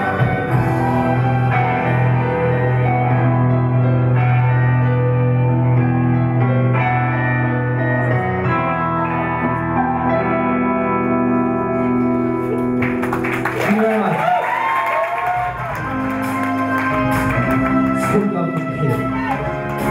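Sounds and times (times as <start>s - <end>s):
electric guitar ringing chords: 0.0s - 13.5s.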